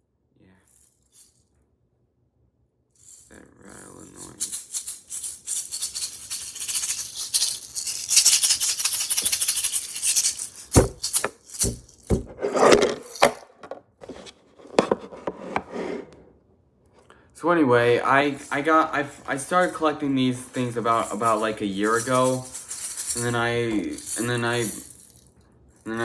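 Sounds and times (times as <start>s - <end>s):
plastic shaker rattling: 0.7s - 1.4s, 3.0s - 12.3s, 18.3s - 26.0s
heavy knocks and handling noise: 10.7s - 15.7s.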